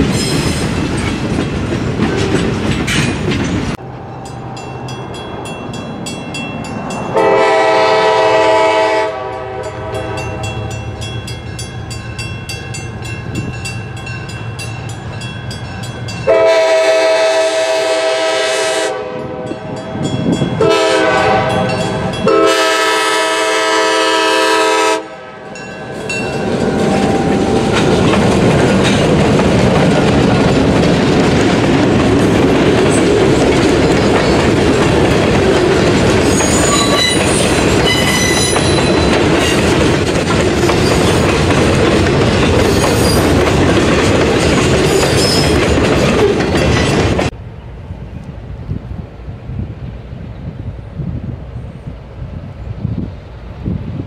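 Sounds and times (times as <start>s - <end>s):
train wheels clattering on rails: 0.0s - 3.8s, 25.6s - 47.4s
diesel locomotive horn: 7.1s - 10.9s, 16.3s - 19.8s, 20.5s - 26.1s.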